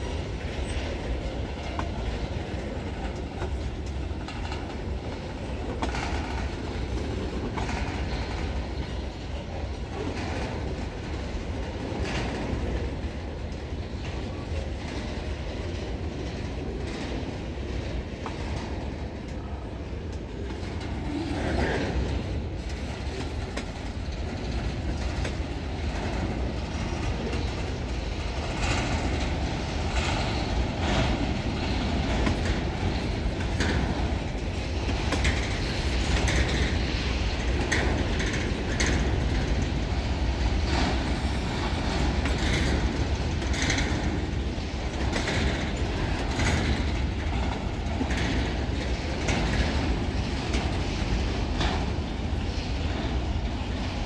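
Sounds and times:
steel wheels rumbling on rail: 0.0s - 54.0s
clicks over rail joints: 0.1s - 54.0s.

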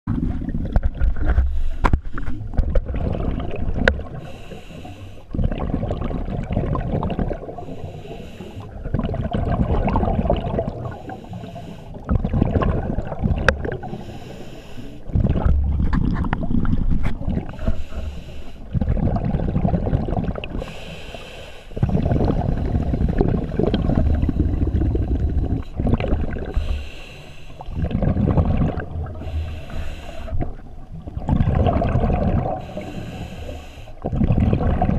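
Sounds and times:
gurgling exhaled bubbles: 0.1s - 1.5s, 2.2s - 4.4s, 5.3s - 7.8s, 8.6s - 11.3s, 11.9s - 14.2s, 15.0s - 20.8s, 21.8s - 33.2s, 34.0s - 34.9s
hiss of inhaled air through regulator: 4.2s - 5.3s, 7.6s - 8.7s, 10.8s - 12.0s, 13.8s - 15.1s, 17.6s - 18.7s, 20.6s - 21.8s, 26.5s - 27.7s, 29.1s - 30.5s, 32.5s - 34.0s.

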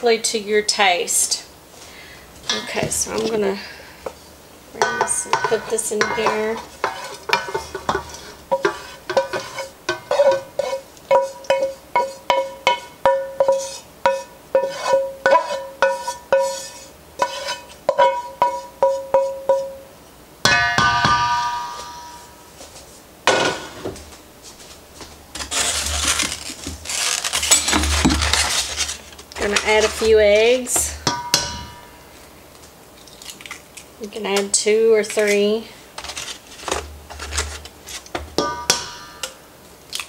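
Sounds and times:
metal bowl ringing clang: 4.8s - 6.6s, 12.3s - 13.5s, 17.9s - 19.8s, 20.4s - 22.4s, 30.9s - 32.0s, 38.4s - 39.4s
skillet knocking on metal bowl: 4.8s - 10.5s, 11.1s - 13.5s, 20.4s - 22.3s, 30.8s - 31.9s, 38.3s - 39.4s
scraping and stirring in bowl: 4.8s - 19.8s, 25.3s - 32.3s, 33.0s - 39.4s.

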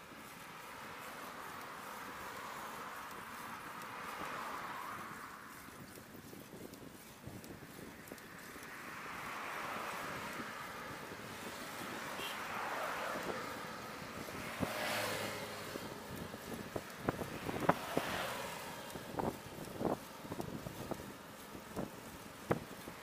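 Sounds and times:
car passing: 0.0s - 23.0s
road noise: 0.0s - 23.0s
wind on microphone: 13.0s - 23.0s.

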